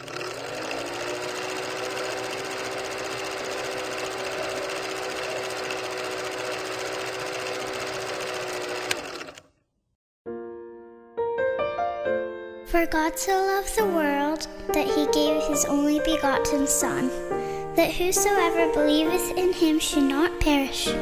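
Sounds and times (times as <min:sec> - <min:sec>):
film projector clatter: 0:00.0 - 0:09.5.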